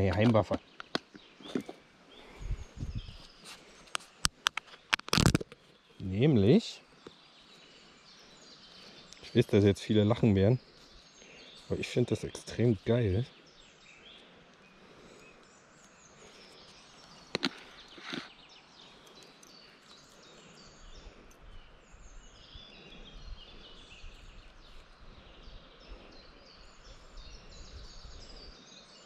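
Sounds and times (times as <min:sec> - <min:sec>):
songbirds chirping and singing: 0:00.0 - 0:29.0.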